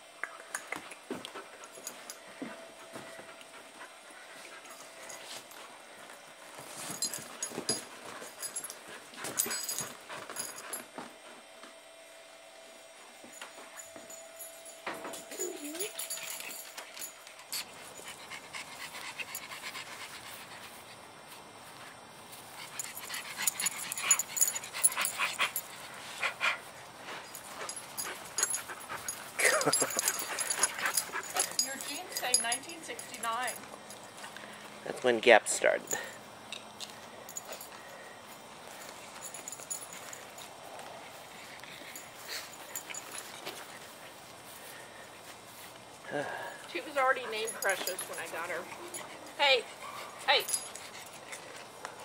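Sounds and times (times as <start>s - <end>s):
dog panting: 1.3s - 5.5s, 15.4s - 21.1s, 22.5s - 33.6s, 46.7s - 52.0s
metal collar tag clinking: 13.7s - 18.2s, 22.7s - 25.7s, 27.2s - 34.2s, 35.9s - 38.0s, 39.1s - 40.5s, 41.9s - 43.6s, 46.8s - 49.6s, 50.3s - 51.6s.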